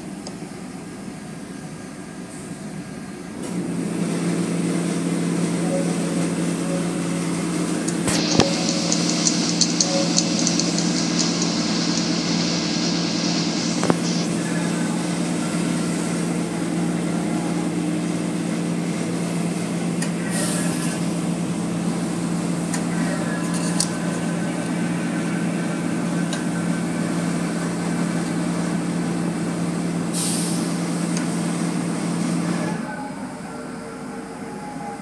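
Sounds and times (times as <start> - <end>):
car wash motor hum: 0.0 - 35.0
water spraying on glass: 7.9 - 14.4.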